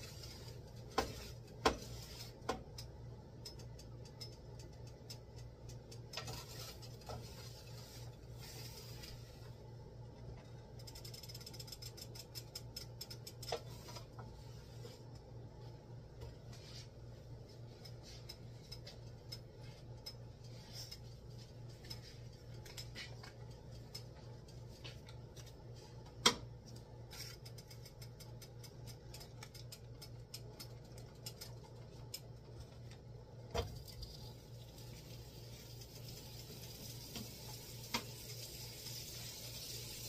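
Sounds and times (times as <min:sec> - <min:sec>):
steady low hum: 0:00.0 - 0:39.9
small utensil clicks: 0:02.7 - 0:06.3, 0:27.4 - 0:32.3.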